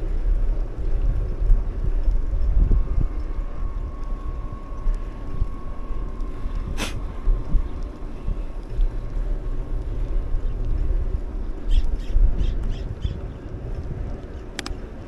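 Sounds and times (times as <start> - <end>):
wind buffeting microphone: 0.0 - 15.0
brief hiss: 6.8 - 7.0.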